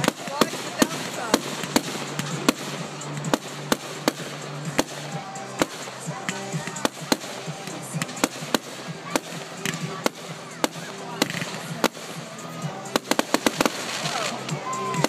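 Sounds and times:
fireworks bangs: 0.0s - 15.0s.

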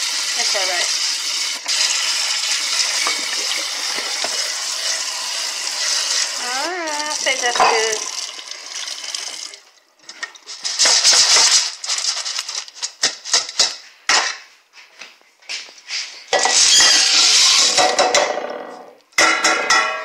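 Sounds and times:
beans clinking in metal colander: 10.5s - 13.6s.

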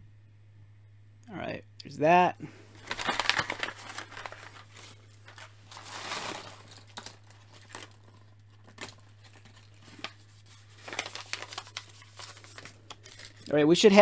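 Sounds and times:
plastic packaging crinkling: 2.7s - 13.8s.

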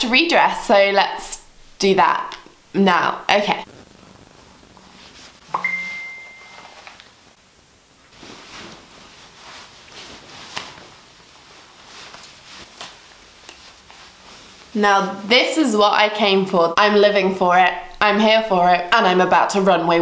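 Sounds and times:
single ding: 5.5s - 6.8s
clothes rustling: 8.0s - 16.0s.

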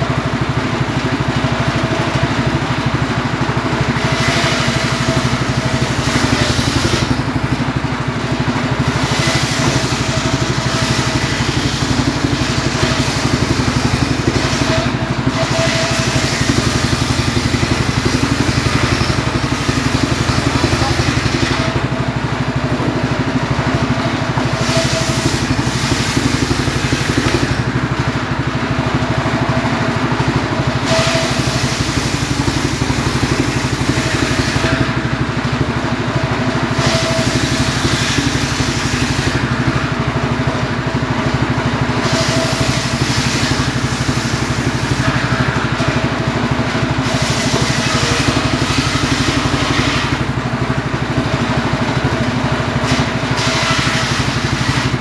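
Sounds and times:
circular saw cutting logs: 0.0s - 55.0s
engine running: 0.0s - 55.0s.

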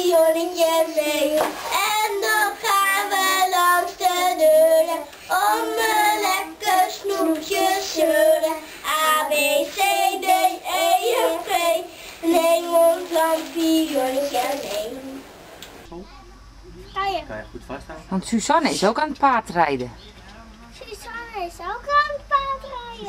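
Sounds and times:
children singing: 0.0s - 15.2s.

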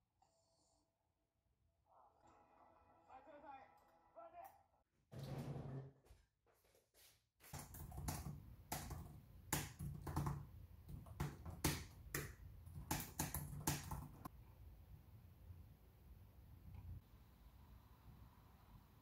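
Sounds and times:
laptop keyboard typing: 7.5s - 14.3s.

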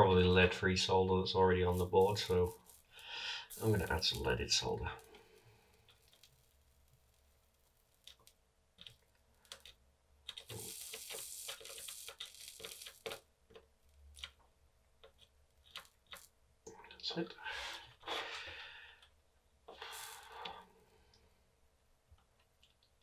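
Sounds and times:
soldering iron sizzling: 1.6s - 8.4s, 10.3s - 13.2s, 19.7s - 20.6s.

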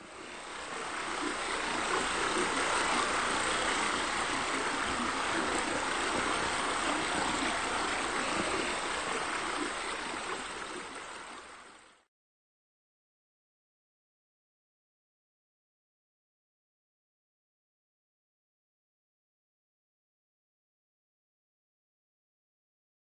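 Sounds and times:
rushing splashing water: 0.0s - 12.0s.

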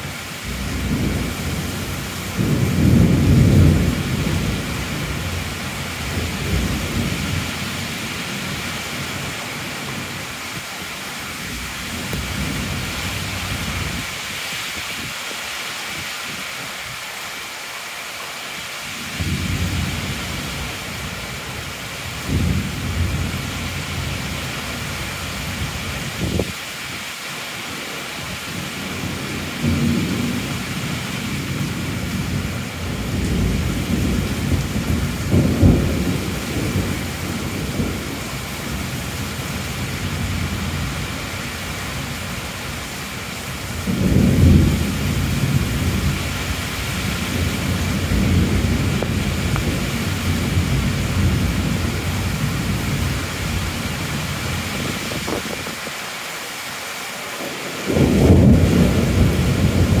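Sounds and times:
thunder rumbling: 0.0s - 9.3s, 11.5s - 14.1s, 19.2s - 26.6s, 28.6s - 41.2s, 43.7s - 55.9s, 57.7s - 60.0s
heavy rain falling: 0.0s - 60.0s.

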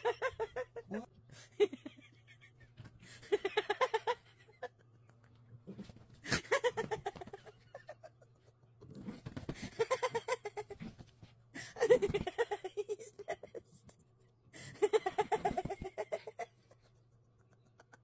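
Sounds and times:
woman giggling: 0.0s - 5.4s, 6.2s - 8.6s, 11.6s - 13.9s, 14.6s - 18.0s.

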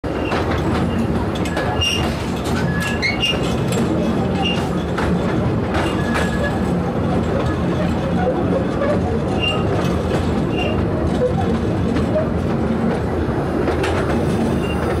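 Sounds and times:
train engine drone: 0.1s - 15.0s
high wheel squeals: 8.9s - 9.8s, 10.5s - 11.4s, 14.5s - 15.0s.

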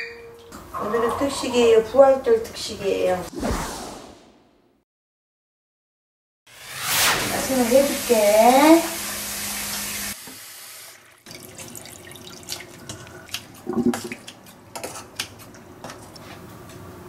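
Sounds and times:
tap water running into saucepan: 9.0s - 13.1s.

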